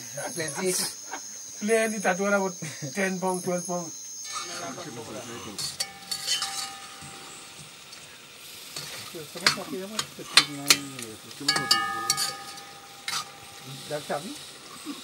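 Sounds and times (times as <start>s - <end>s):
faint sizzle: 0.0s - 15.0s
spoon scraping metal pot: 4.3s - 7.7s, 8.8s - 13.8s.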